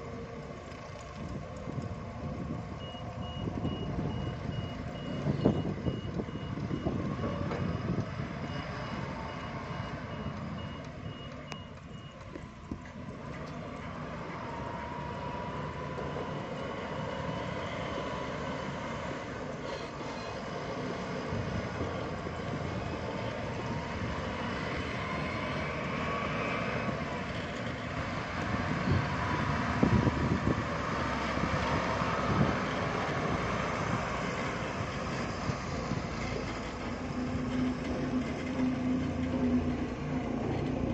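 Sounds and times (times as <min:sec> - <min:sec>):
forklift engine running: 0:00.0 - 0:40.9
reversing alarm beeping: 0:02.8 - 0:12.4.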